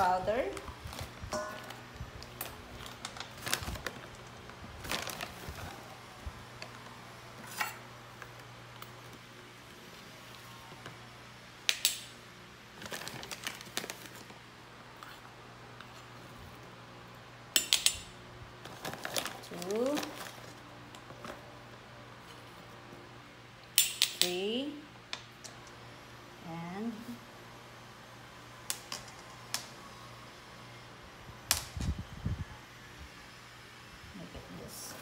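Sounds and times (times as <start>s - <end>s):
foil bag crinkling: 0.5s - 5.9s, 12.8s - 14.4s, 18.6s - 21.2s.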